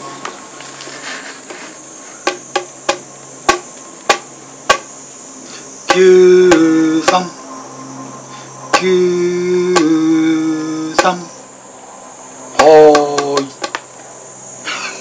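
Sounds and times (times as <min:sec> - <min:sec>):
man's voice holding a note: 0:12.6 - 0:13.6.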